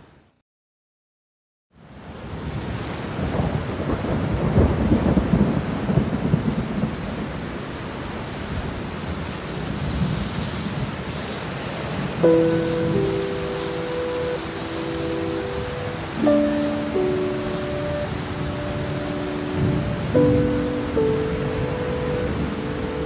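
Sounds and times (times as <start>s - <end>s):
steady rain: 1.8s - 23.0s
low rumbling thunder: 3.2s - 7.4s
soft sustained music notes: 12.2s - 23.0s.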